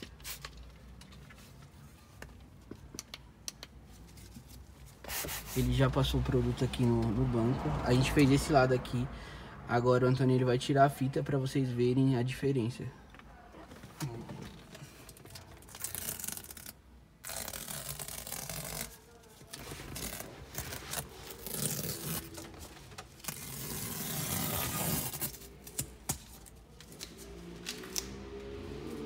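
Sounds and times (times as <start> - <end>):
tape peeling off leather: 15.2 - 22.6.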